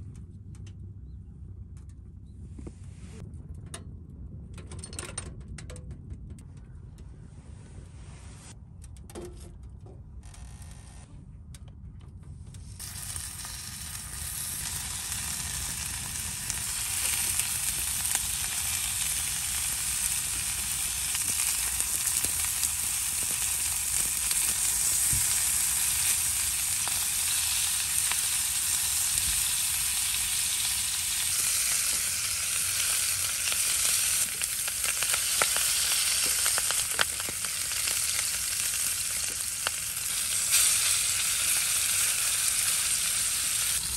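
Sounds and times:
meat sizzling in a frying pan: 12.8s - 43.9s.

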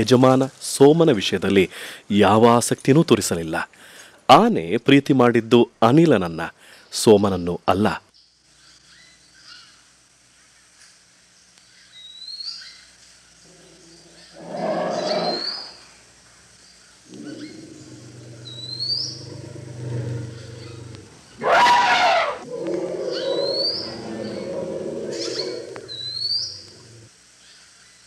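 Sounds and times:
bird rising chirp: 13.5s - 15.8s, 17.1s - 27.1s
elephant harsh roar: 14.3s - 15.7s, 17.1s - 27.1s
elephant low rumble: 17.0s - 27.1s.

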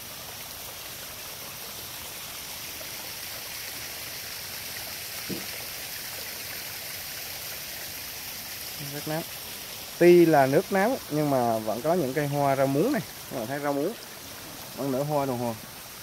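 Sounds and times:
water flowing in shallow stream: 0.0s - 16.0s.

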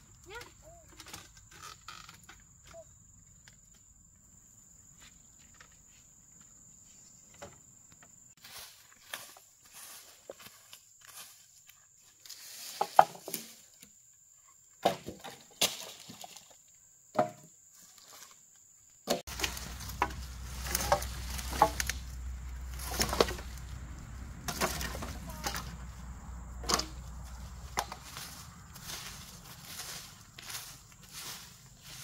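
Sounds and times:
bamboo pieces clattering: 12.3s - 13.8s, 14.8s - 16.6s, 19.0s - 32.0s
hand tool striking ground: 19.1s - 23.7s, 24.3s - 26.0s, 26.6s - 32.0s.

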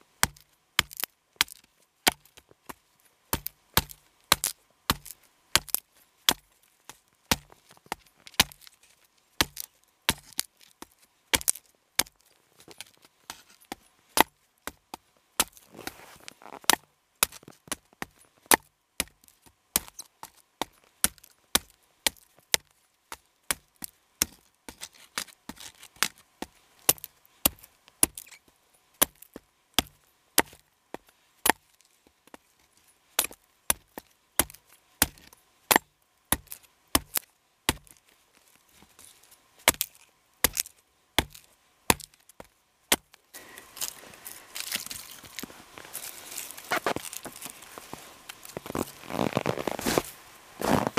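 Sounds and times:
knife chopping wood: 0.2s - 2.3s, 3.3s - 6.4s, 7.3s - 7.5s, 9.4s - 10.5s, 11.3s - 12.1s, 26.9s - 28.3s, 29.0s - 30.6s, 33.2s - 38.0s, 39.7s - 42.2s
scuffing rustle: 15.4s - 18.5s, 43.4s - 50.9s.

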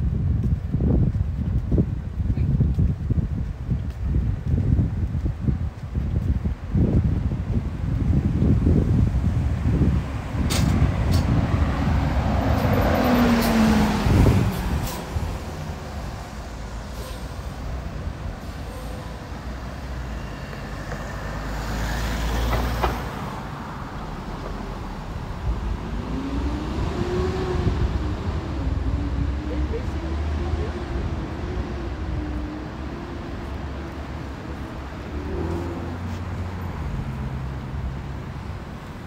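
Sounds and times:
cars passing: 5.2s - 39.0s
vehicle accelerating away: 25.7s - 34.1s.

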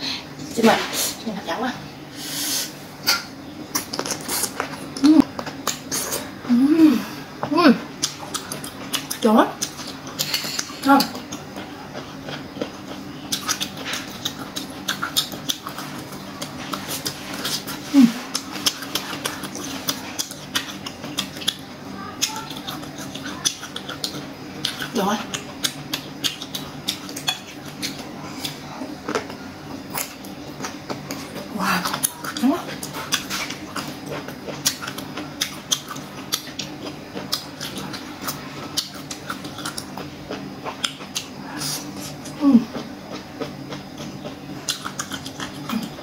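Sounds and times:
steady low hum: 0.0s - 46.0s
crunchy wet chewing: 3.0s - 6.5s, 7.9s - 46.0s.

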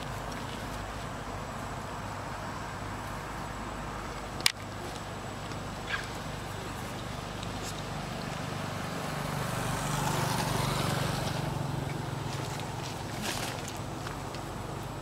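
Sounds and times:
motorbike passing by: 5.7s - 15.0s.

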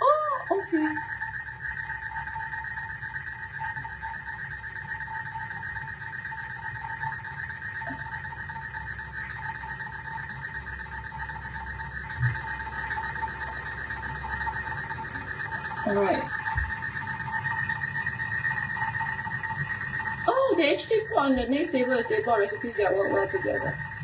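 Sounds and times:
steady high tone hum: 0.0s - 24.0s
low rumble: 7.8s - 24.0s.

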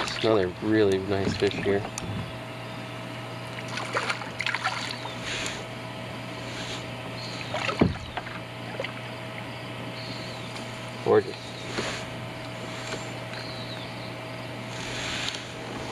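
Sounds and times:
steady low hum: 0.0s - 15.9s
fish splashing at the surface: 3.6s - 5.0s.

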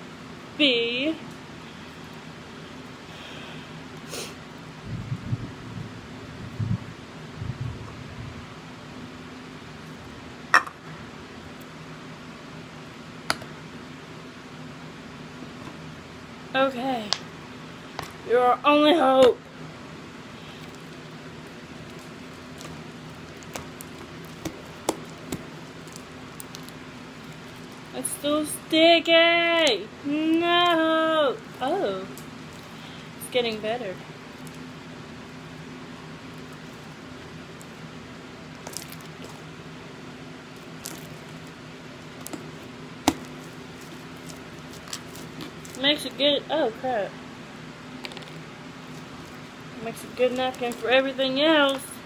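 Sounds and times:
steady low hum: 0.0s - 52.0s
slime squelching: 20.4s - 28.3s, 38.5s - 39.5s, 40.4s - 46.2s.

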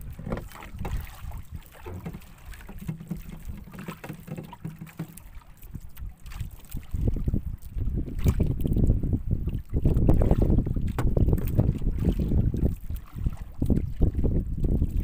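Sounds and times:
water lapping at boat hull: 0.0s - 15.0s
wind rumbling on microphone: 0.0s - 15.0s
light knocks and clicks: 1.8s - 5.3s.

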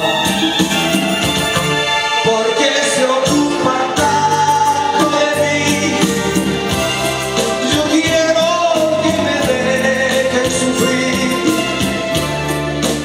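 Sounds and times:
acoustic guitar: 0.0s - 13.0s
man singing into a microphone: 2.1s - 6.8s, 7.4s - 12.3s.

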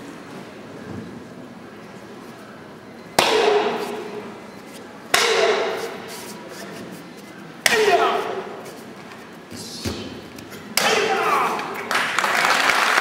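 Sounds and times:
person shouting: 10.8s - 11.8s.

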